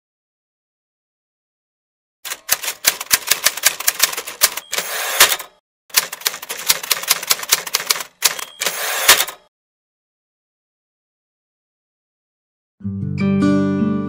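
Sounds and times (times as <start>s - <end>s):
typewriter carriage return sliding: 2.3s - 9.4s
typewriter key strikes: 2.3s - 9.4s
typewriter bell ding: 2.3s - 9.5s.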